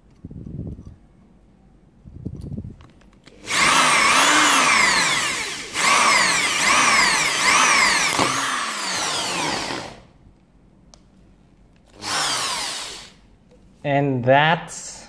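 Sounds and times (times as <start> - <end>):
drill bit snapping: 3.2 - 10.0, 11.9 - 13.2
power drill motor whine: 3.3 - 10.0, 11.9 - 13.2.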